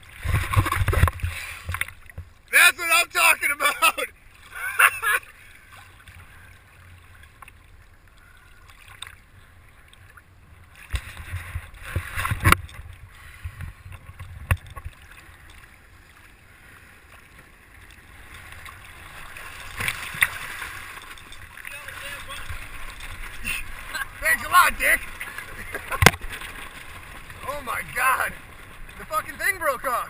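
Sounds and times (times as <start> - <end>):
water sloshing and splashing: 0.0 - 2.6, 3.2 - 30.0.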